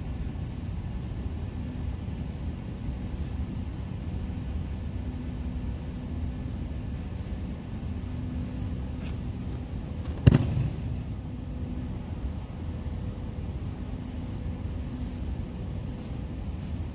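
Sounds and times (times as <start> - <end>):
low rumble in hall: 0.0 - 16.9
breakfall slap: 10.0 - 11.1.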